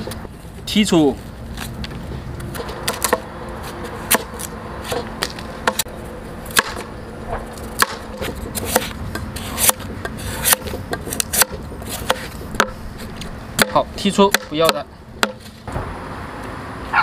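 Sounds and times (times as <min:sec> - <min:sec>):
cleaver chopping on cutting board: 0:07.8 - 0:09.0, 0:09.6 - 0:12.8, 0:13.6 - 0:15.4.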